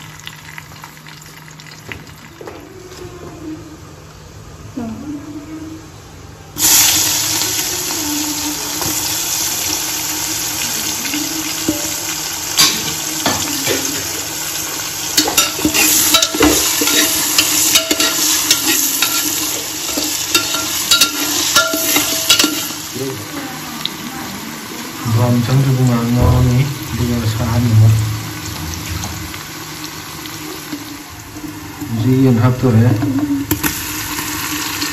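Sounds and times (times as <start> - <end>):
onions sizzling in hot fat: 6.6 - 34.9
ladle scraping against pot: 15.2 - 22.8.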